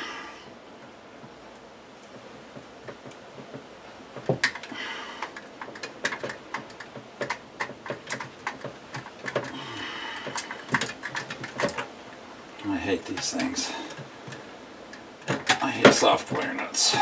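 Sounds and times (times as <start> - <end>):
wire nut clicking and scraping: 1.2 - 17.0.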